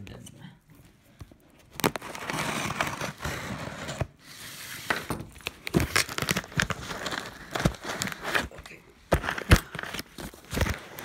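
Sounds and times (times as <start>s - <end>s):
wrapping crinkling: 1.4s - 3.5s, 5.3s - 11.0s
package being torn open: 1.7s - 3.3s, 5.4s - 11.0s.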